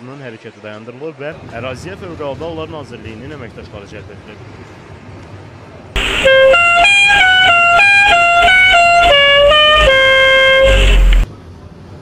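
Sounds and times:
reedy horn-like tune: 6.0s - 11.3s.

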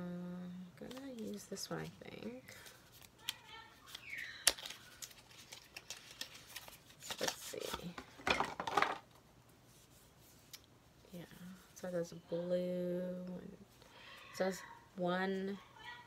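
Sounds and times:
makeup cases clattering and rattling: 7.9s - 9.1s.

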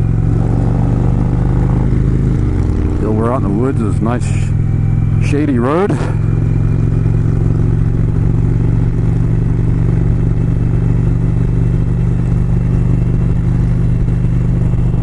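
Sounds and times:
motorcycle engine running: 0.0s - 15.0s
road and wind noise: 0.0s - 15.0s.

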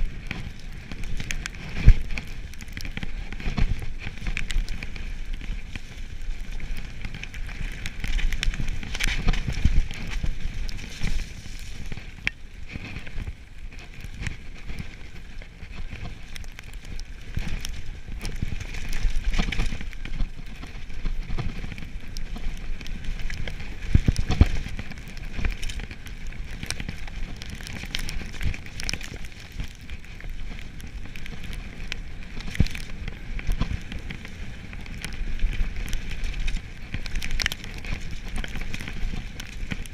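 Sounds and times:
bike clicks and rattles: 0.0s - 39.9s
bike tyres rolling over wet grit: 0.0s - 39.9s
low wind rumble: 0.0s - 39.9s.

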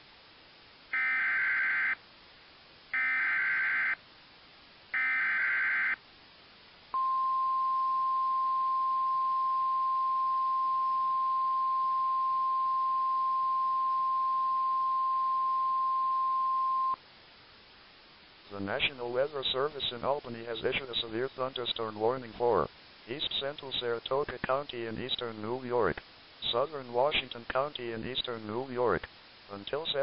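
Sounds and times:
steady warning alarm tone: 1.0s - 2.0s, 3.0s - 4.0s, 5.0s - 6.0s.

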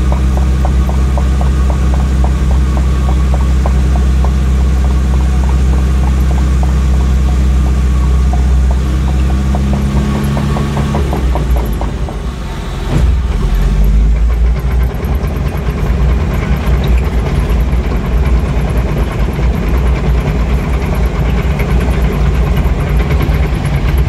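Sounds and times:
diesel engine running hard: 0.0s - 24.0s
thump: 12.9s - 13.7s.

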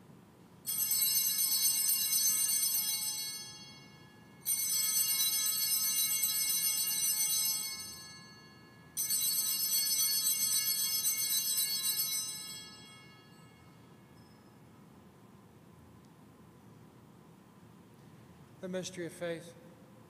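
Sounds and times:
altar bells ringing: 0.7s - 14.7s.

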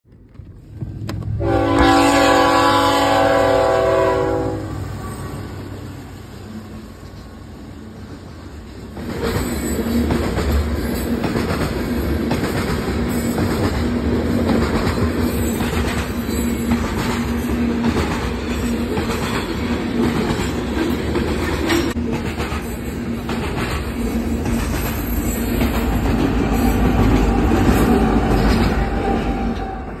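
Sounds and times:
train chord horn blast: 1.4s - 5.8s
train wheels clickety-clack: 8.0s - 30.0s.

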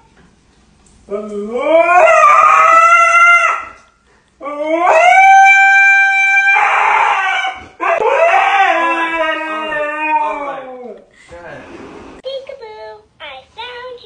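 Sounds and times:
dog howling: 1.1s - 11.1s.

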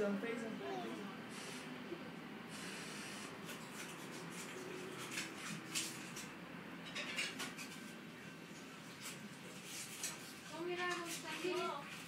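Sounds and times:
scratchy rustles and scrapes: 2.7s - 6.3s, 8.9s - 12.0s.

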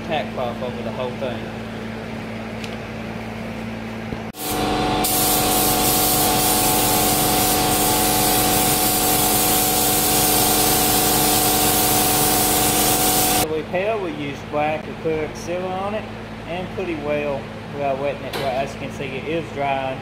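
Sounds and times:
steady multi-tone hum: 0.0s - 20.0s
paint spray gun hissing: 4.4s - 13.4s.

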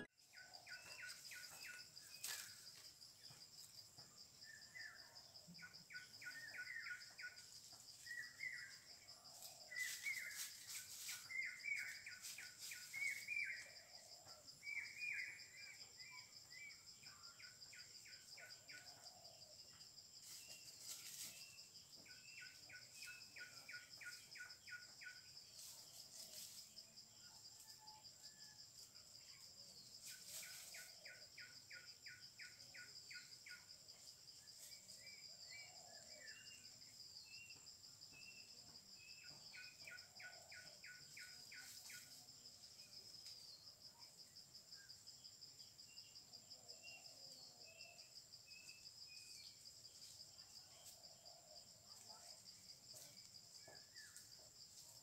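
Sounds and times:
bird chirps: 0.0s - 2.6s.

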